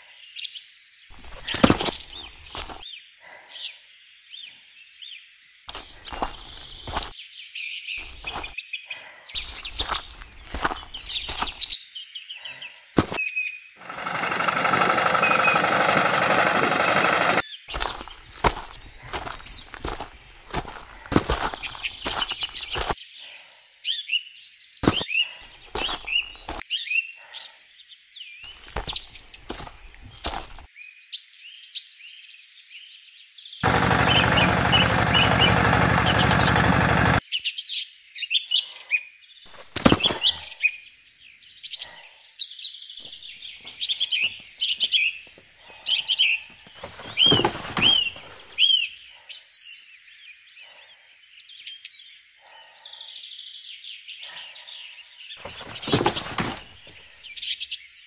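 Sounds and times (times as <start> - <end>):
small birds chirping: 0.0 - 58.0
small electric motor running: 13.8 - 17.4.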